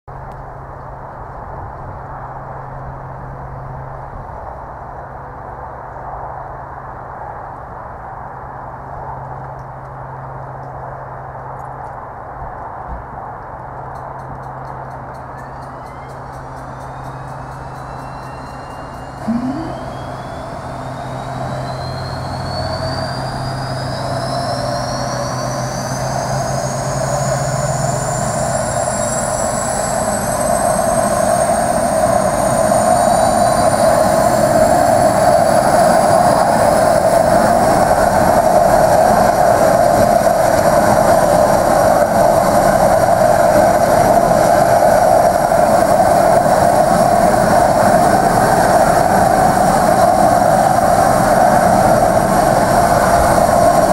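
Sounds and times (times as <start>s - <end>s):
turboprop engine whine: 0.1s - 53.9s
engine rushing noise: 15.0s - 53.9s.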